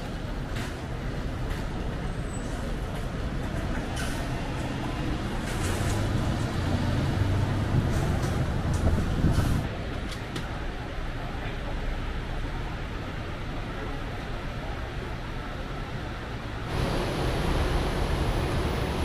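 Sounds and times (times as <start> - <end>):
vehicle engine rumble: 0.0 - 11.2, 15.2 - 19.0
road traffic: 0.0 - 19.0.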